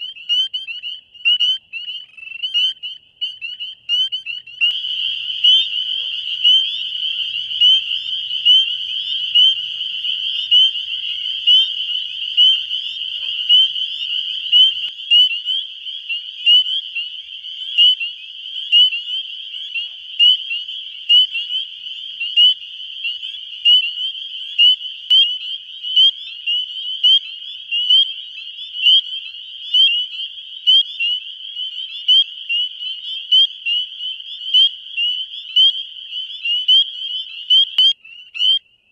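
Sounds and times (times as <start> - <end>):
chorus of frogs: 0.0 - 38.9
frog rising peep: 0.3 - 22.6.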